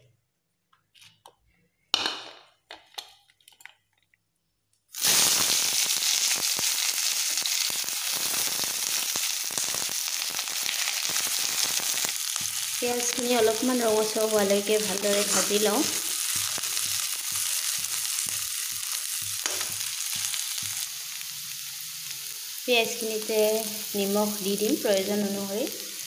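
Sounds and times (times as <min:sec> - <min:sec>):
onions sizzling in hot oil: 0:04.9 - 0:26.0.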